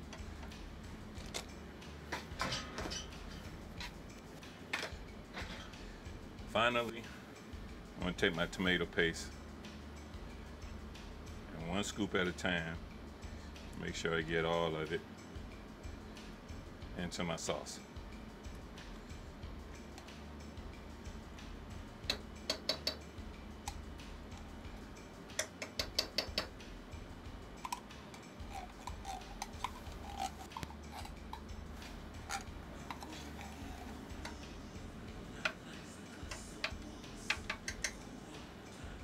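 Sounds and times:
utensil tapping metal cans: 25.4 - 26.5.

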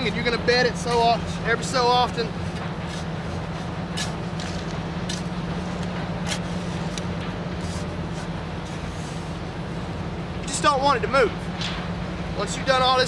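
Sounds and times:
low mechanical hum: 0.0 - 13.0
shovel scraping sandy soil: 0.8 - 9.3.

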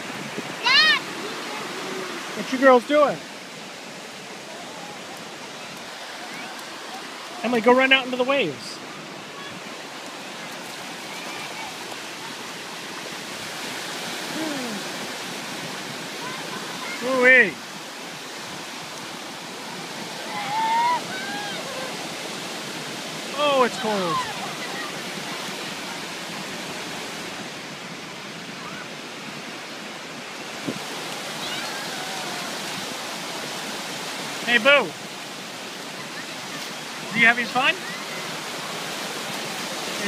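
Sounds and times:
ocean surf breaking on sand: 0.0 - 40.0
faint voice: 14.3 - 15.0.

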